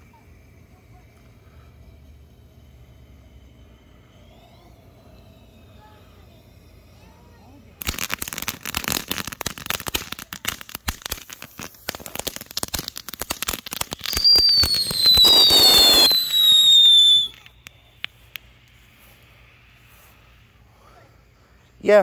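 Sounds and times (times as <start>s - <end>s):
firework hiss: 0.0s - 22.0s
firework whistles falling in pitch: 0.9s - 19.4s
firework crackling pops: 3.8s - 20.3s.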